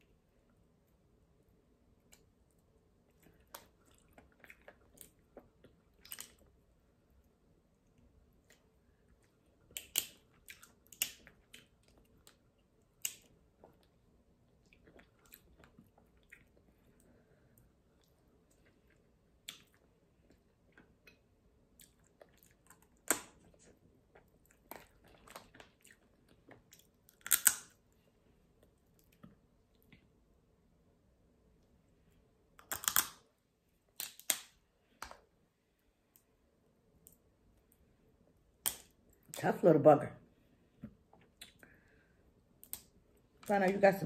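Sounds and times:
chewing: 0:03.1 - 0:06.5, 0:14.6 - 0:27.6
crab shells cracking: 0:27.1 - 0:27.8, 0:32.6 - 0:33.2.

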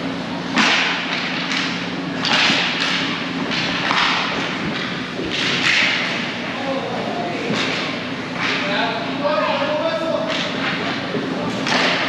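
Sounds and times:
low rink hum: 0:00.0 - 0:12.0
stick and puck thuds: 0:00.5 - 0:06.4, 0:07.4 - 0:08.7, 0:10.2 - 0:12.0.

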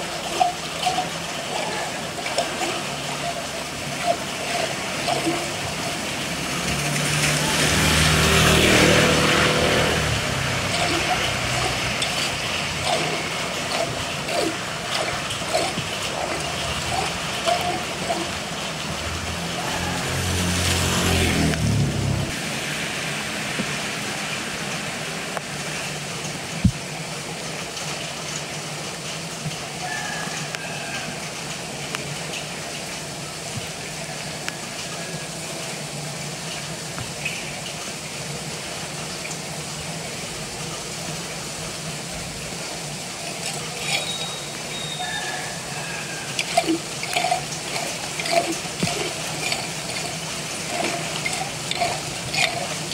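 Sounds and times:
water rushing through grate: 0:00.0 - 0:52.9
vehicle engine passing: 0:04.8 - 0:23.0.

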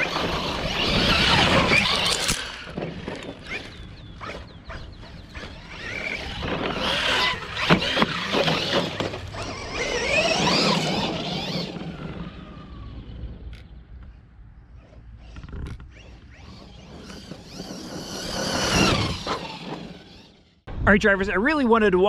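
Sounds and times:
tyres scrabbling on gravel: 0:00.0 - 0:11.6
electric motor whining: 0:00.0 - 0:13.6, 0:14.7 - 0:20.6.

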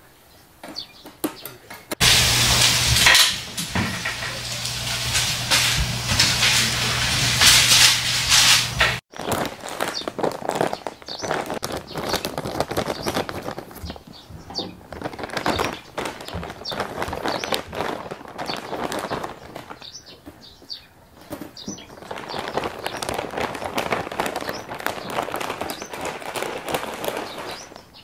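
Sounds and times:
meat sizzling on a grill: 0:02.0 - 0:09.0
plastic bag crinkling: 0:02.0 - 0:28.0.

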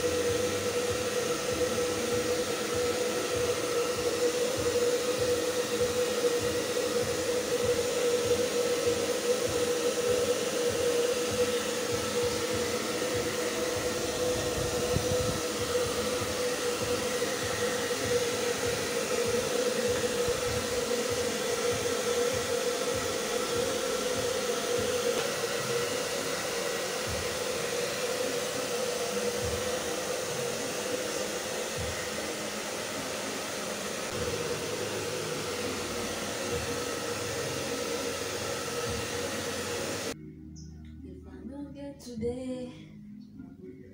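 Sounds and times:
hair dryer blowing: 0:00.0 - 0:40.2.

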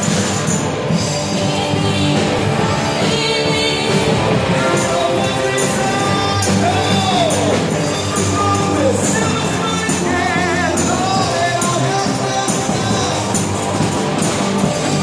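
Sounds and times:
live rock band playing: 0:00.0 - 0:15.0
man singing into microphone: 0:01.8 - 0:13.5.

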